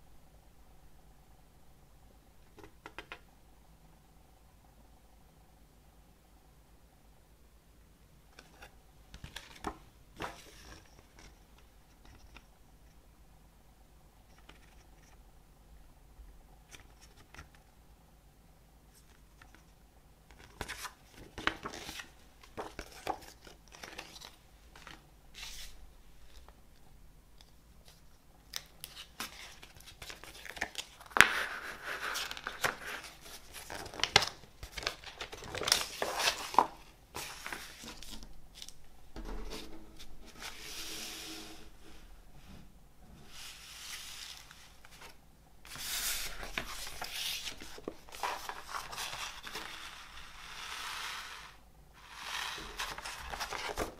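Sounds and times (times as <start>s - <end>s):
paper crinkling and rustling: 20.4s - 26.6s, 27.8s - 38.8s, 43.4s - 50.2s, 52.0s - 53.9s.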